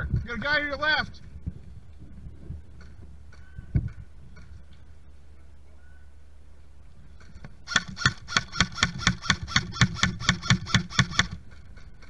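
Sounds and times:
airsoft rifle rapid shots: 7.7 - 11.6.

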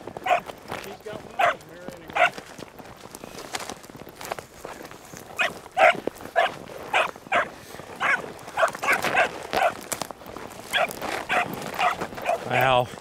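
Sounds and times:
beagle puppy yelping: 0.2 - 0.5, 2.2 - 2.4, 5.4 - 9.8, 10.7 - 12.7.

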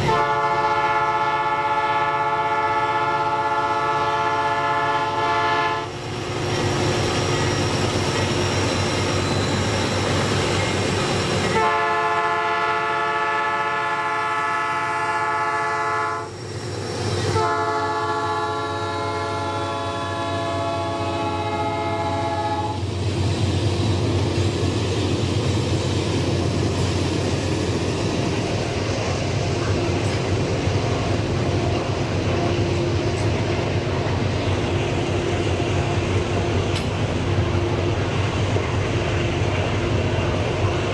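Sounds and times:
train horn blasts: 0.0 - 5.9, 11.5 - 16.3, 17.3 - 22.8
freight cars rumbling on rails: 0.0 - 40.9.

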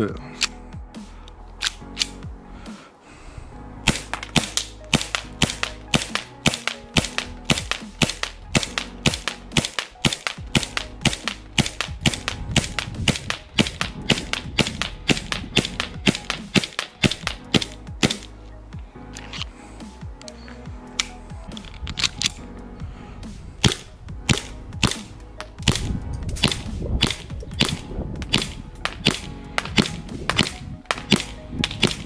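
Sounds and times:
airsoft pistol shots: 3.9 - 18.3, 23.6 - 32.0.

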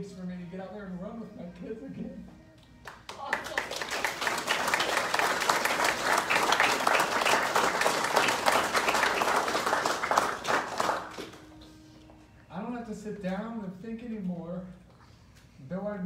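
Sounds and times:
audience applauding: 2.9 - 11.6.

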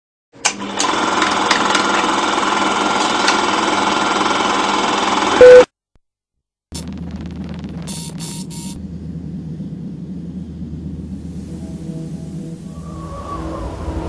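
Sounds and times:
film projector rattle and whir: 0.4 - 5.4
loud short beep: 5.4 - 5.7
low hum: 6.7 - 14.0.

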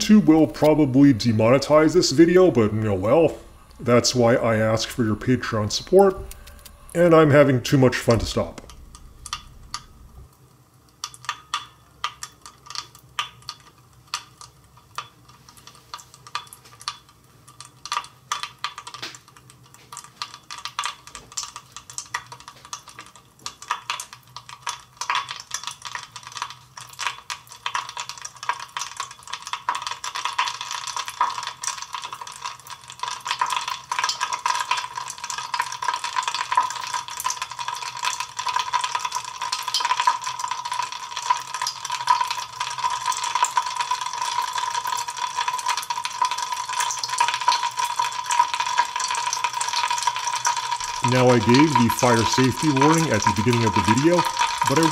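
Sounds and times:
chemical explosions popping: 0.0 - 10.3.

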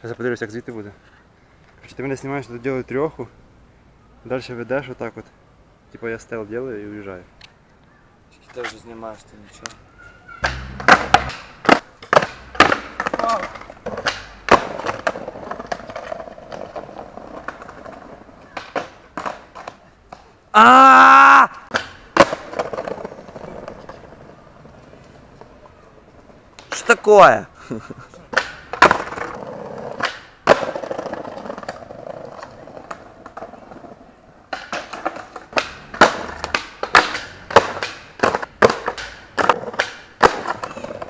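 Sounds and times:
skateboard clacking: 9.6 - 20.4, 21.6 - 27.0, 28.1 - 41.0
skateboard impact: 9.6 - 20.4, 21.5 - 26.9, 28.2 - 41.0
skateboard wheels rolling over tiles: 10.4 - 21.0, 21.6 - 41.0
person shouting: 20.5 - 21.6.

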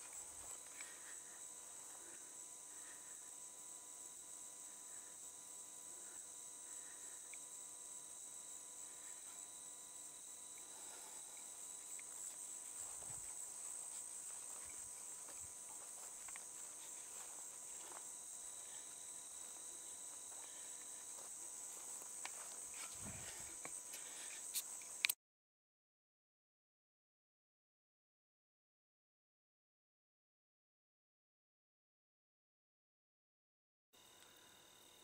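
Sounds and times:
crickets trilling: 0.0 - 25.2.

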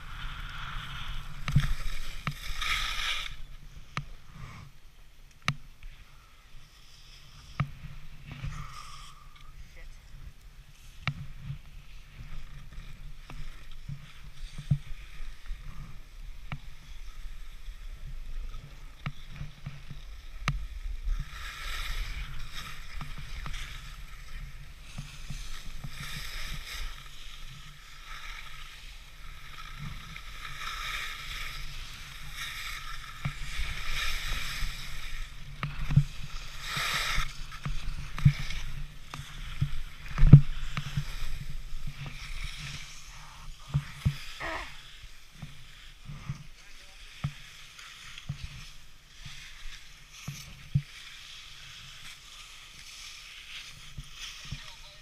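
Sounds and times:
skis scraping over packed snow: 0.0 - 5.0, 5.6 - 55.0.

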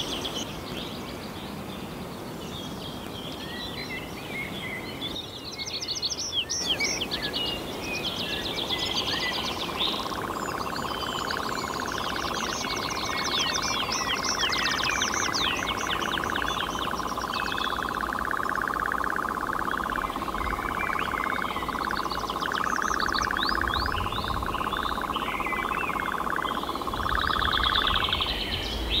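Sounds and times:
birds chirping: 0.0 - 29.0
nightjar churring trill: 8.5 - 29.0.

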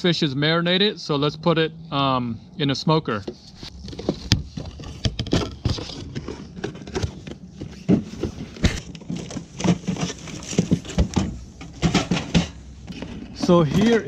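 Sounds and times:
gear knocking and clunking: 3.2 - 14.0
plastic cooler opening: 3.6 - 14.0.

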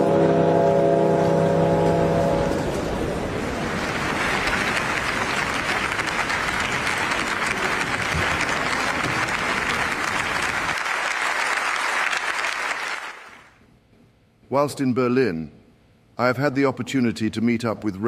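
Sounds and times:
large audience applauding: 3.4 - 13.6.

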